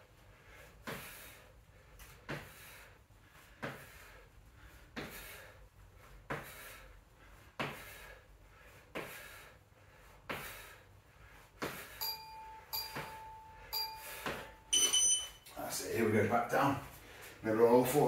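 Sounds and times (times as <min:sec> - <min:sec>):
feet thudding on exercise mat: 0:00.8 - 0:01.3, 0:02.0 - 0:02.8, 0:03.4 - 0:09.5, 0:10.2 - 0:12.0, 0:12.8 - 0:13.2, 0:14.0 - 0:14.6
interval timer beeps: 0:12.0 - 0:15.5.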